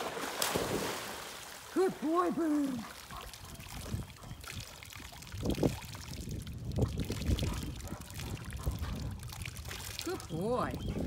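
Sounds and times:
dog splashing in pool water: 0:00.0 - 0:04.0.

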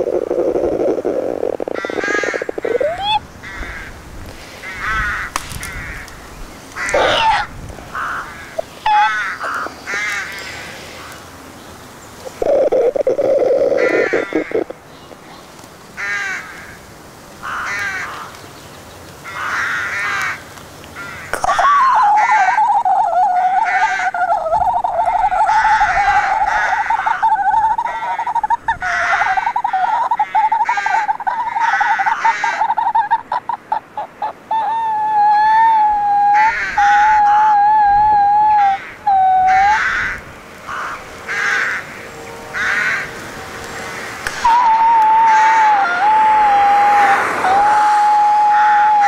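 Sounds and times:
low buzzing croak: 0:00.0 - 0:03.9, 0:12.2 - 0:14.8, 0:39.0 - 0:44.1
crows cawing: 0:00.0 - 0:04.0, 0:04.6 - 0:06.2, 0:06.8 - 0:11.2, 0:12.4 - 0:14.7, 0:16.0 - 0:18.4, 0:19.2 - 0:33.0, 0:36.2 - 0:37.6, 0:38.6 - 0:49.0.

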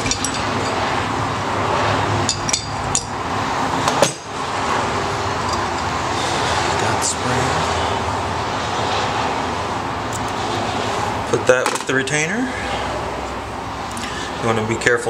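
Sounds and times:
metallic clinks and taps: 0:00.0 - 0:00.8, 0:02.3 - 0:03.2, 0:05.4 - 0:06.0
steady background noise: 0:00.0 - 0:15.0.

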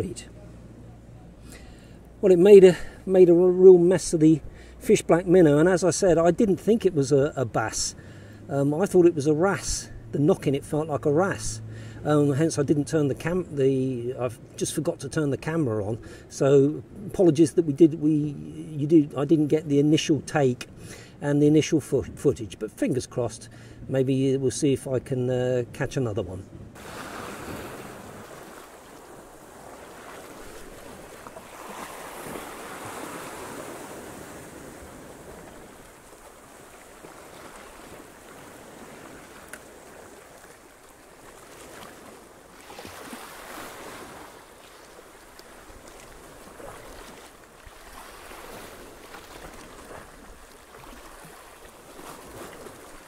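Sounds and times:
waves splashing against rocks: 0:26.8 - 0:53.0.

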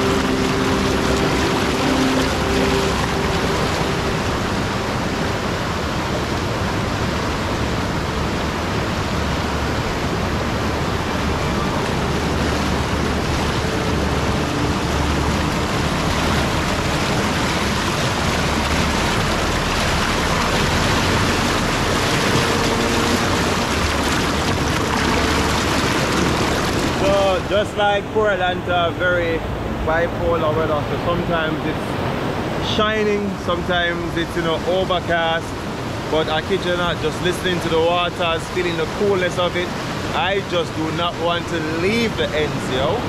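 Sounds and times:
river rushing over rocks: 0:00.0 - 0:43.0.

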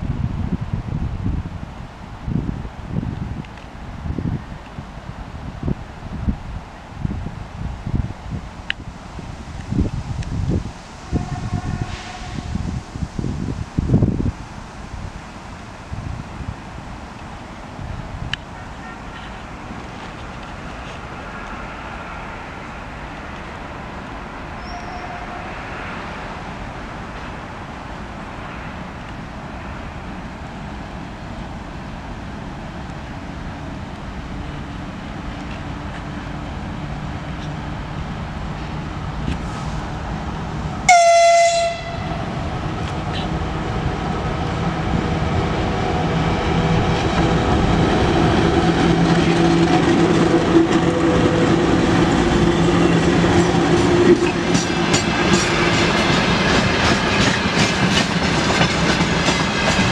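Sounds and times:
electric locomotive hum: 0:00.0 - 0:59.9
locomotive horn blast: 0:11.1 - 0:12.6, 0:18.6 - 0:19.4, 0:24.6 - 0:25.6, 0:40.9 - 0:42.2
train wheels rolling: 0:32.8 - 0:59.9.

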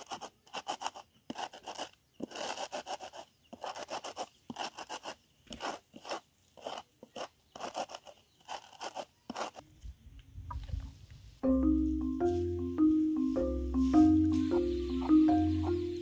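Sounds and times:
rolling pin crushing seeds: 0:00.0 - 0:09.6.

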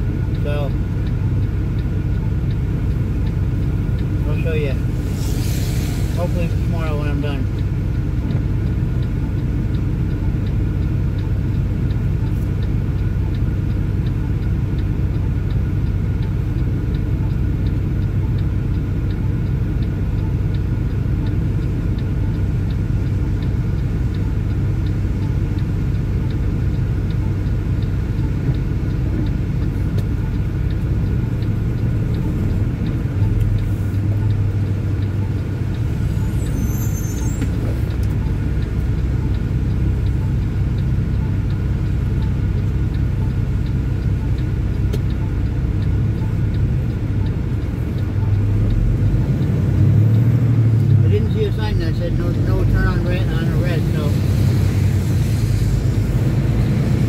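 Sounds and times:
diesel truck engine idling: 0:00.0 - 0:57.0
faint steady ticking: 0:00.0 - 0:57.0.

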